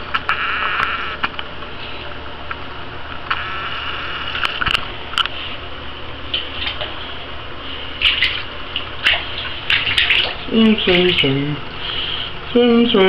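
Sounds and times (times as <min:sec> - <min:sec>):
water splashing in bathtub: 0:06.3 - 0:11.8.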